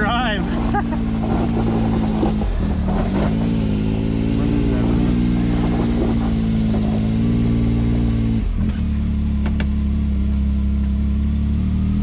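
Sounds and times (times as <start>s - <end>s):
engine running at low speed: 0.0s - 12.0s.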